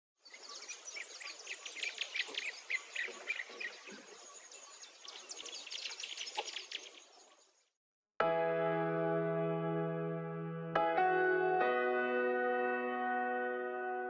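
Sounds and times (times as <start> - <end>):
birds chirping: 0.2 - 7.8.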